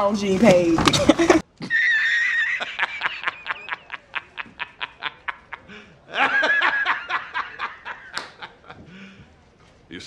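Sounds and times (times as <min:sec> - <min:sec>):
man laughing heartily: 0:01.1 - 0:09.0.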